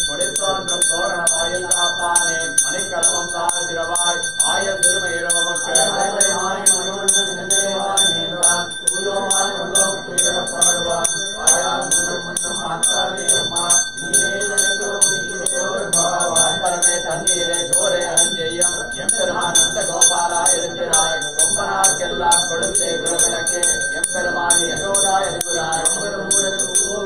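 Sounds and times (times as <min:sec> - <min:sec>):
hand bell ringing: 0:00.0 - 0:27.0
men chanting: 0:00.0 - 0:27.0.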